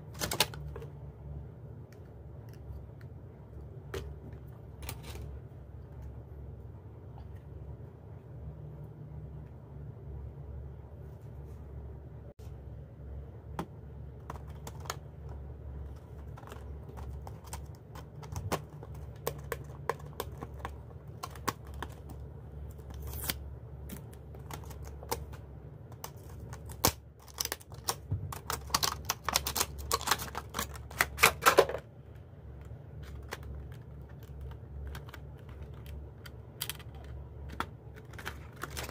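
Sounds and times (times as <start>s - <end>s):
steady low hum: 0.0s - 38.9s
plastic packaging crinkling: 26.0s - 31.9s, 33.0s - 38.9s.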